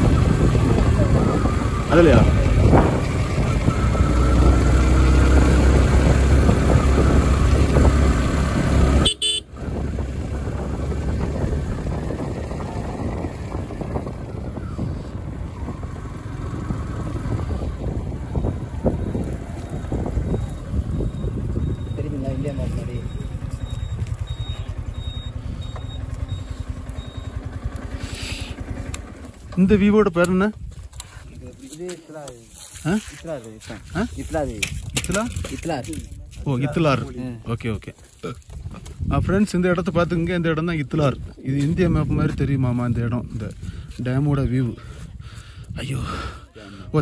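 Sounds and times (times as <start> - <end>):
wind buffeting microphone: 0.0 - 26.8, 38.4 - 46.4
motorcycle engine and road rumble: 0.0 - 47.0.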